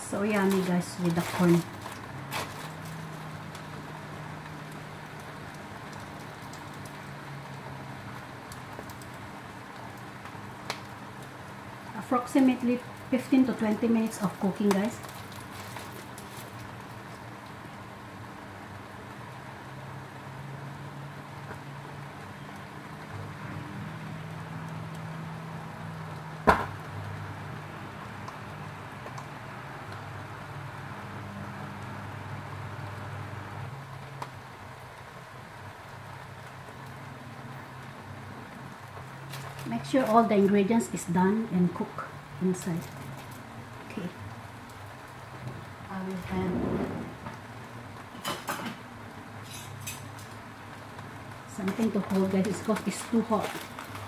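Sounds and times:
food sizzling: 0:00.0 - 0:54.0
gas flame hissing: 0:00.0 - 0:54.0
low steady hum: 0:27.2 - 0:54.0.

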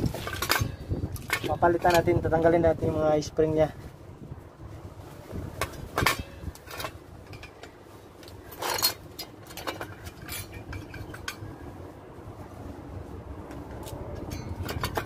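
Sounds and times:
metal tools clinking: 0:00.0 - 0:02.2, 0:05.6 - 0:11.6, 0:14.2 - 0:15.0.

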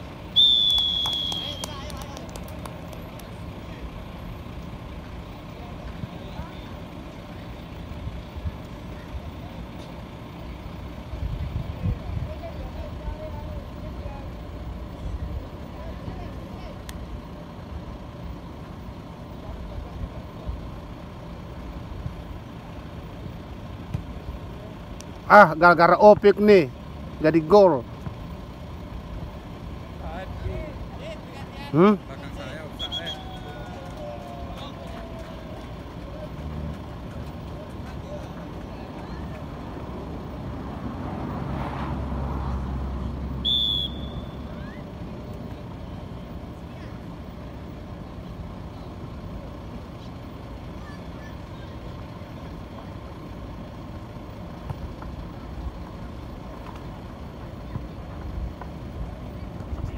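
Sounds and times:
low outdoor rumble: 0:00.0 - 0:59.9
referee's whistle blast: 0:00.4 - 0:01.7, 0:32.7 - 0:33.6, 0:43.4 - 0:44.8.

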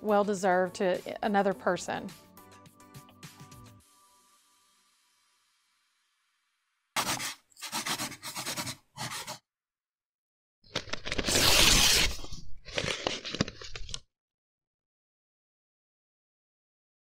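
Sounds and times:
paper tearing: 0:07.0 - 0:09.4, 0:10.8 - 0:14.0
paper crinkling: 0:10.7 - 0:14.0.

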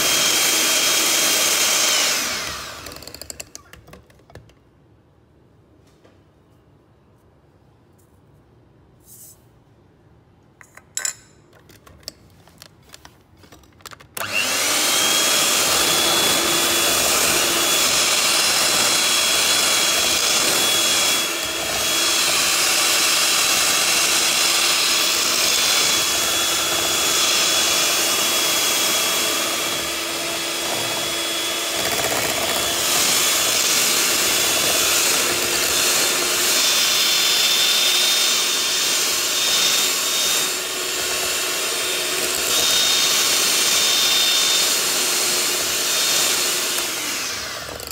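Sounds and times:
electric hand mixer whining: 0:00.0 - 0:03.6, 0:14.2 - 0:47.9.

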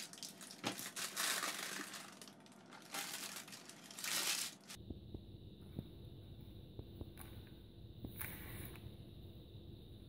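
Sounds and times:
baking paper crinkling: 0:00.0 - 0:04.8.

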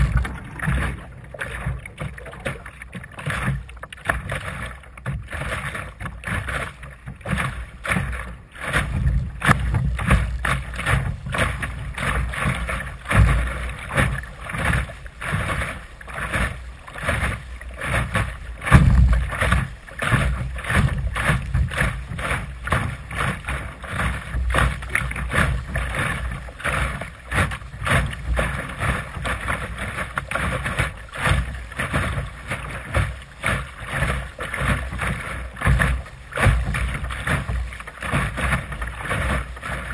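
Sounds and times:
wind buffeting microphone: 0:00.0 - 0:02.4
water splashing against boat: 0:00.0 - 0:39.9.

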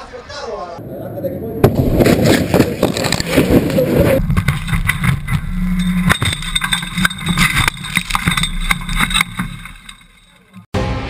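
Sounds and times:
sharp clattering knocks: 0:04.2 - 0:10.7.

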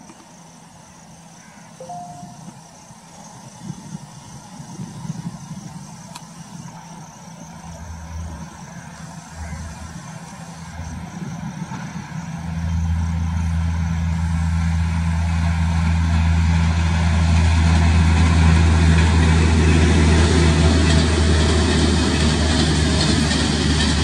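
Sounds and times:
electric locomotive hum: 0:00.0 - 0:24.0
train coaches rolling: 0:06.4 - 0:24.0.

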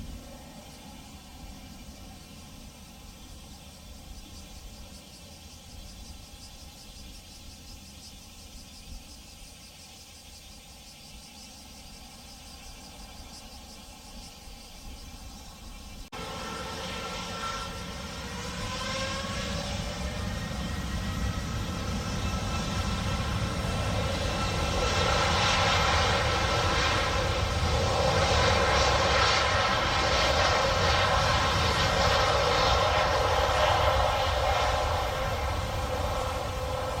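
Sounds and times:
jet engines spooling up: 0:15.3 - 0:37.0.

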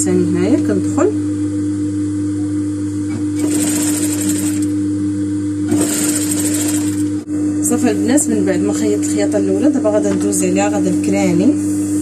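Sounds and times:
motor hum: 0:00.0 - 0:12.0
sewing machine stitching: 0:03.4 - 0:04.7, 0:05.7 - 0:07.1.

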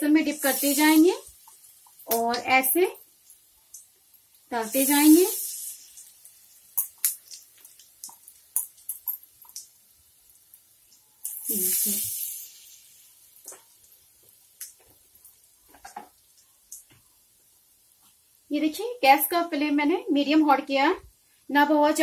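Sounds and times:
loud sizzling burst: 0:00.0 - 0:03.0, 0:04.4 - 0:07.4, 0:11.2 - 0:13.3
oil crackling and popping: 0:00.0 - 0:18.5.

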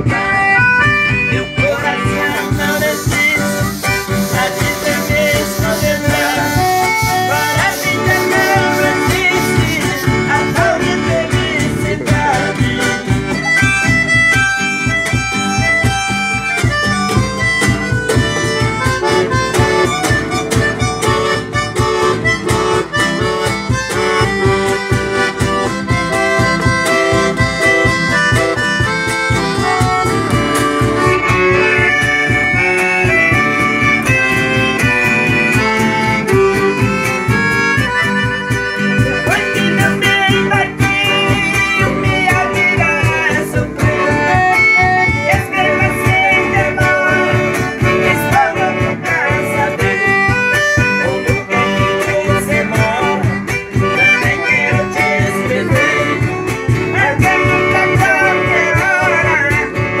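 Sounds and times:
accordion melody: 0:00.0 - 1:00.0
acoustic guitar strumming: 0:00.0 - 1:00.0
men singing: 0:01.6 - 0:13.6, 0:39.2 - 1:00.0.

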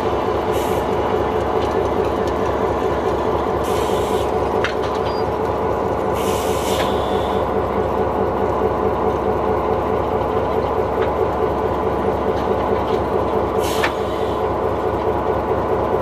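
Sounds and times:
diesel locomotive engine running: 0:00.0 - 0:16.0
short air hisses: 0:03.6 - 0:04.3, 0:06.2 - 0:07.4, 0:13.6 - 0:14.4.

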